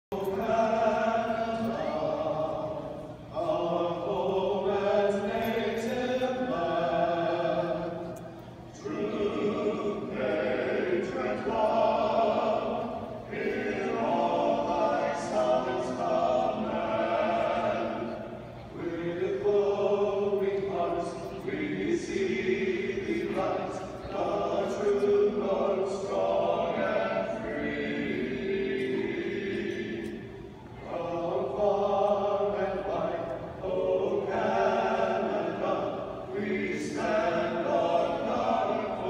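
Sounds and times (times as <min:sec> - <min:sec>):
vocal quartet singing a cappella: 0:00.1 - 0:39.0.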